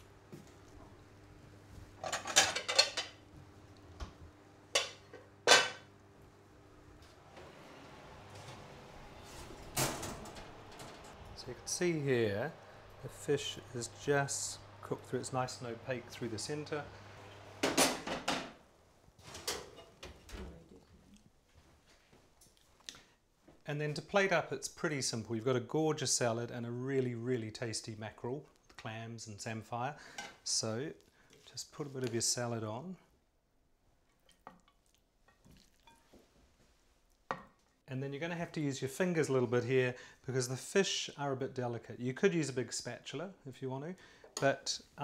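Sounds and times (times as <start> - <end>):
oven shelf metallic clatter: 9.4 - 11.2.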